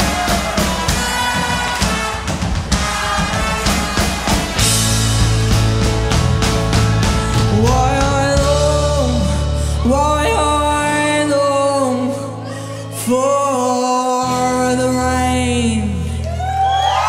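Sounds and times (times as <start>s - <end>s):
drums pounding: 0.0s - 8.9s
live band music: 0.0s - 12.2s
bass line: 0.0s - 17.0s
person singing long notes: 7.3s - 16.4s.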